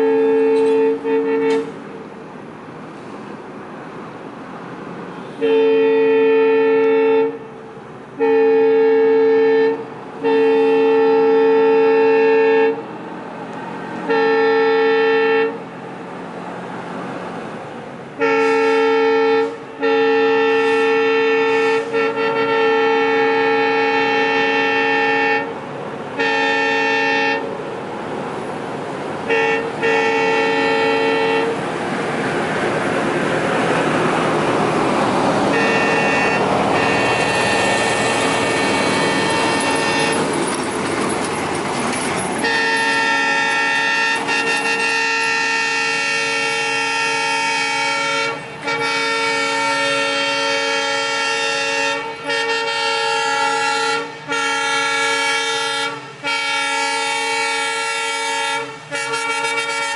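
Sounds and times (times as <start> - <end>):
locomotive horn blasts: 0.0 - 1.8, 5.2 - 7.6, 8.2 - 12.9, 13.9 - 15.7, 18.2 - 27.5, 29.2 - 31.6, 35.5 - 40.4, 42.4 - 59.9
train rumble: 0.0 - 59.9.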